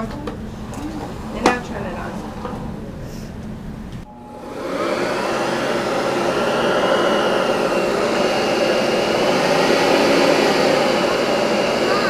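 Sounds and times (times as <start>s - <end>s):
vacuum cleaner motor running: 0.0s - 3.1s, 4.0s - 12.0s.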